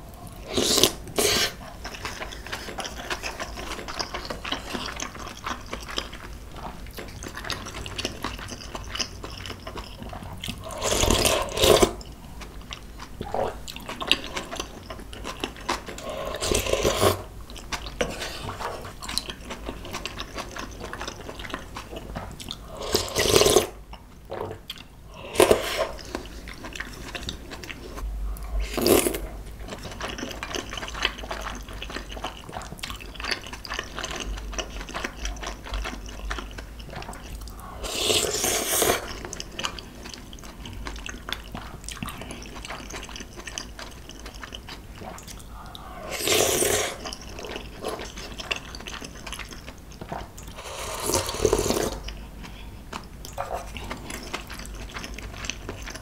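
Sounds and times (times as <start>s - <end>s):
slurping noodles and broth: 0.4s - 3.4s, 10.6s - 12.0s, 15.9s - 17.3s, 22.6s - 23.8s, 25.1s - 27.0s, 28.6s - 29.3s, 37.5s - 39.4s, 45.0s - 48.4s, 50.5s - 52.1s
wet chewing: 0.6s - 56.0s.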